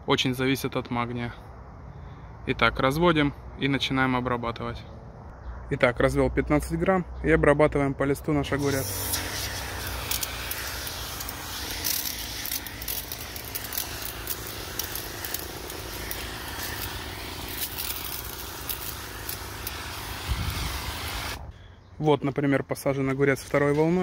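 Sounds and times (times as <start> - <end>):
sprayer misting hiss: 8.6 - 21.5.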